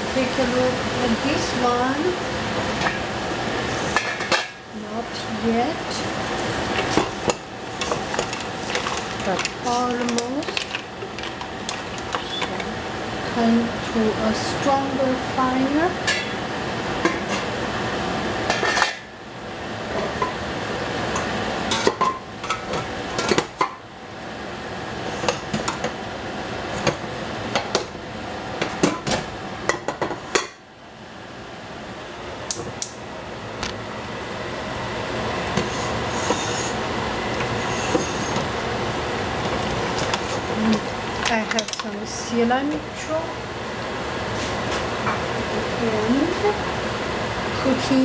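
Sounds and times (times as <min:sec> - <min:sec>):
food sizzling on high heat: 0:00.0 - 0:28.7
metal utensil scraping a pan: 0:35.6 - 0:36.8, 0:37.5 - 0:38.4.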